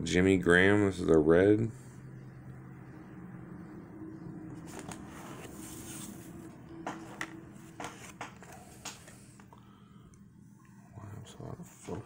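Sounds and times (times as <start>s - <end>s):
cards rustling: 4.6s - 9.5s
cards tapping on table: 6.8s - 9.0s.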